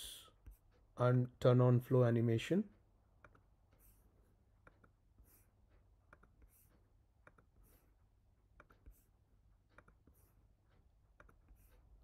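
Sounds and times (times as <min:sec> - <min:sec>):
computer mouse clicks: 0:03.2 - 0:04.0, 0:04.6 - 0:07.9, 0:08.5 - 0:09.1, 0:09.7 - 0:10.4, 0:11.1 - 0:11.8.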